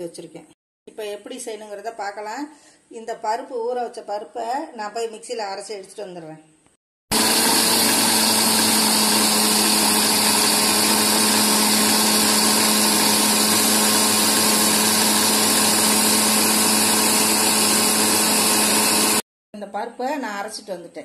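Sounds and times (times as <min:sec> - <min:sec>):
mixer grinder motor humming: 0:07.1 - 0:19.2
jar grinding lentils: 0:07.2 - 0:19.2.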